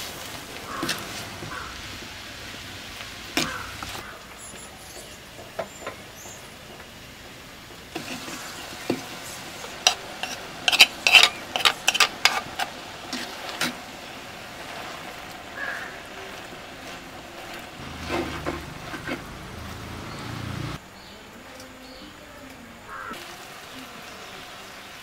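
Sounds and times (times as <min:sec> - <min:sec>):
food sizzling in hot oil: 0:00.0 - 0:20.8, 0:22.9 - 0:25.0
wooden spoon scraping clay pot: 0:07.9 - 0:13.8, 0:17.4 - 0:20.2.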